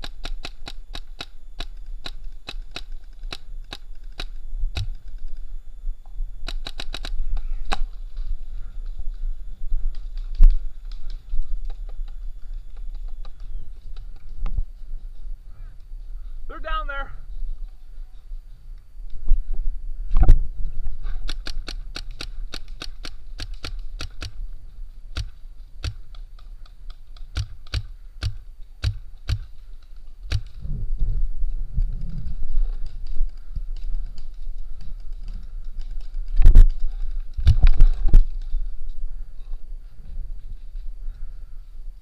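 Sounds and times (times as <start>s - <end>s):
paintball marker shots: 25.1s - 26.2s, 27.2s - 29.5s, 30.3s - 30.6s.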